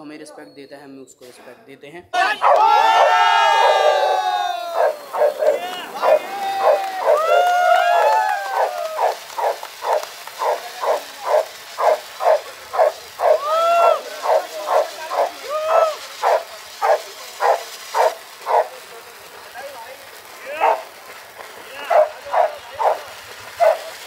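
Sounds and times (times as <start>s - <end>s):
dog whining yelps: 3.6s - 7.3s, 7.9s - 18.7s, 23.6s - 23.8s
small dog barking: 4.8s - 7.2s, 8.5s - 18.7s, 20.6s - 20.9s, 21.9s - 23.9s.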